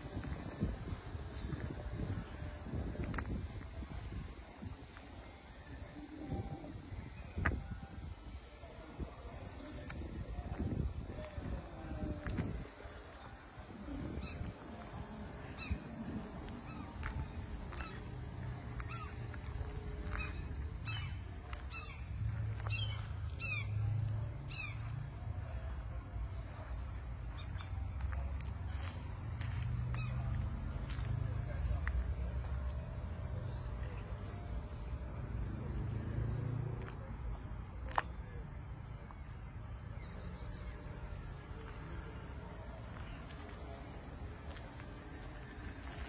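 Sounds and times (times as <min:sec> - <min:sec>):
low outdoor rumble: 0:00.0 - 0:46.0.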